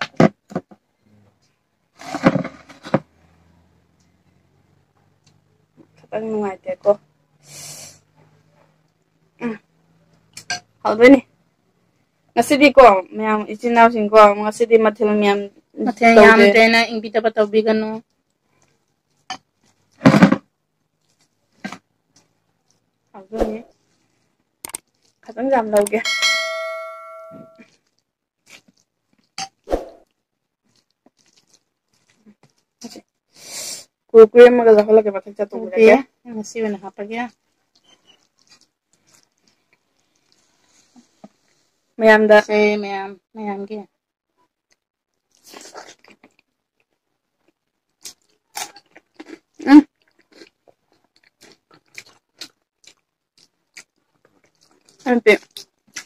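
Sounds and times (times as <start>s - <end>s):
short breathy noise: 7.4s - 8.1s
chewing and smacking: 20.9s - 23.1s, 24.1s - 25.3s, 27.6s - 29.4s, 30.0s - 32.8s, 37.3s - 40.6s, 44.7s - 56.0s
metal bowl ringing: 26.0s - 27.6s.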